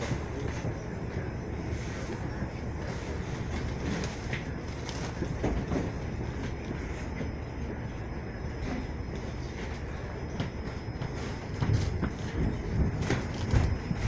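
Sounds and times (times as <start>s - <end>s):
electric train rumbling: 0.0s - 14.0s
clicks and knocks of train: 10.4s - 14.0s.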